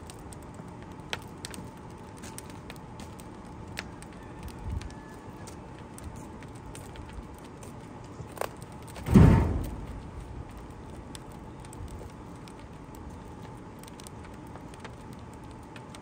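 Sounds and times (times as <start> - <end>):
fire crackling: 0.0 - 16.0
wood chunk thudding into firebox: 9.0 - 10.0.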